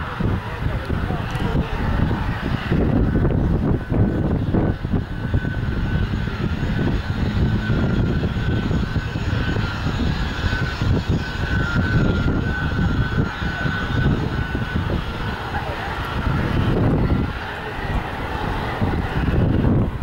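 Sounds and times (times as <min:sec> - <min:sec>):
jet engine whining: 0:00.0 - 0:20.0.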